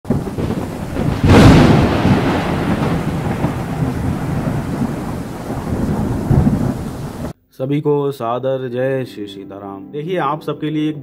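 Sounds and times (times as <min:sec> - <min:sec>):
loud thunderclap rumbling: 0:00.1 - 0:07.3
steady rain-like hiss: 0:00.1 - 0:07.4.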